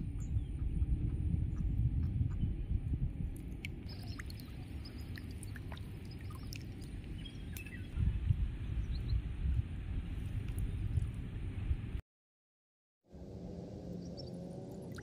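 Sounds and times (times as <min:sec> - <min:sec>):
wind rumbling on microphone: 0:00.0 - 0:12.0.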